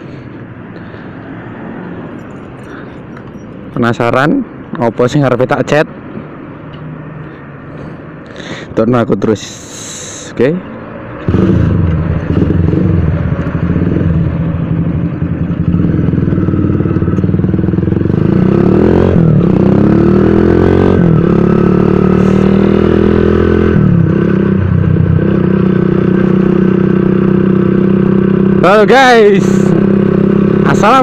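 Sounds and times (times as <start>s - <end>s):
motorcycle engine running: 11.2s - 31.0s.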